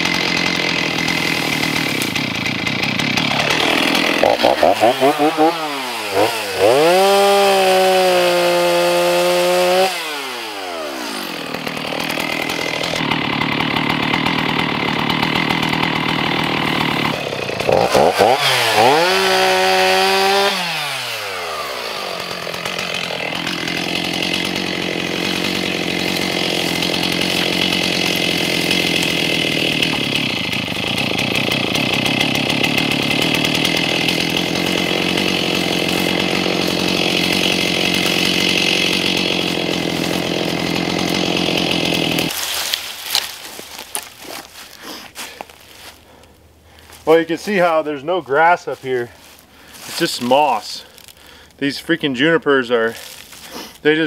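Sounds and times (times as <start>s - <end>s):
chainsaw revving: 0.0s - 42.4s.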